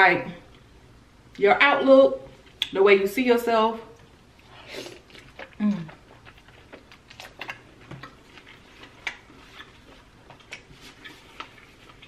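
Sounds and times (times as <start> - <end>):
wet chewing clicks: 5.0 - 12.0.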